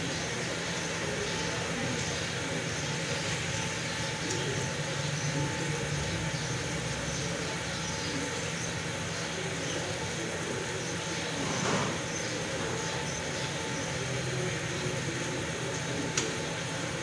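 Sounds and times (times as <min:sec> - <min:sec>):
machinery droning with low hum: 0:00.0 - 0:17.0.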